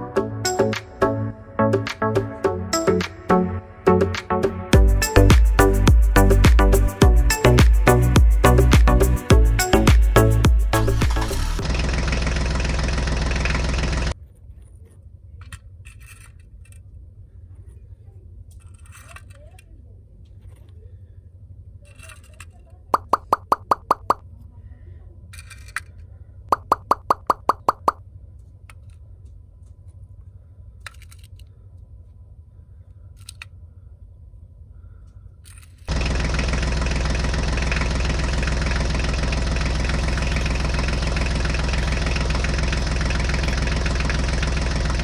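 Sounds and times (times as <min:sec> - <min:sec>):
small clay bricks clicking: 0:21.8 - 0:24.2, 0:25.3 - 0:28.0, 0:30.8 - 0:31.5, 0:33.1 - 0:33.6, 0:35.4 - 0:35.9
clay bricks clicking on plastic: 0:25.4 - 0:28.0, 0:30.8 - 0:31.5
steady low hum: 0:28.0 - 0:45.0.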